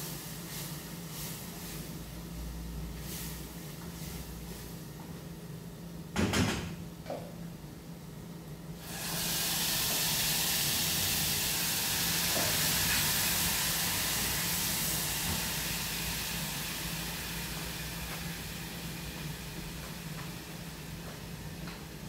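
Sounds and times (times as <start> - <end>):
food sizzling in a pan: 8.8 - 21.0.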